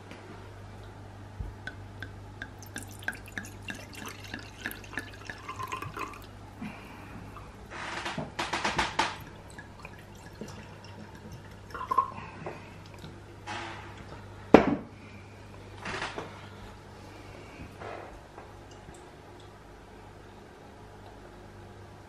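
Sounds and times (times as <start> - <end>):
wine gurgling into glass: 2.6 - 6.4, 9.2 - 12.3.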